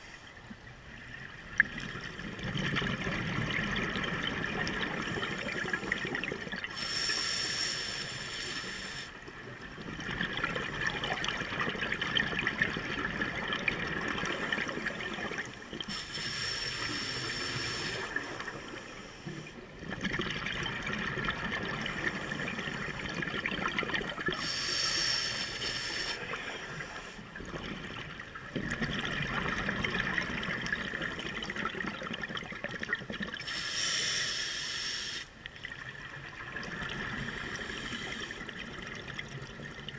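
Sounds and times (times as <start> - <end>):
exhaled bubbles: 1.4 - 6.8, 9.5 - 16.0, 16.8 - 24.6, 26.1 - 33.5, 35.6 - 39.9
regulator breath hissing: 6.7 - 9.2, 15.9 - 18.3, 24.4 - 27.2, 33.4 - 35.4, 37.2 - 38.4.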